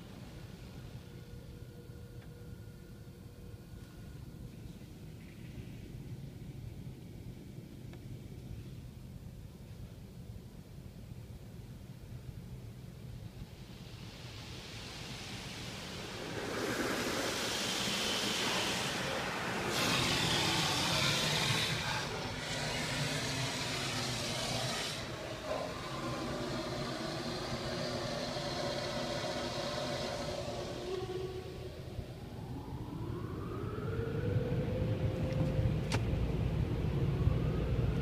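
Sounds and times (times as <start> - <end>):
high-pressure water spray hissing: 13.6 - 31.9
machine hum: 13.6 - 38.0
rising machine whine: 14.3 - 38.0.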